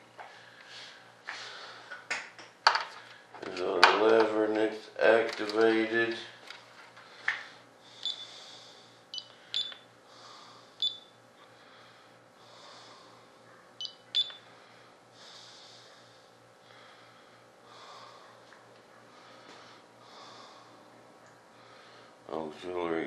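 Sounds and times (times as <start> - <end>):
soft breathing: 0.2 - 1.9, 7.0 - 13.7, 14.4 - 22.2
short high beeps: 9.6 - 9.8.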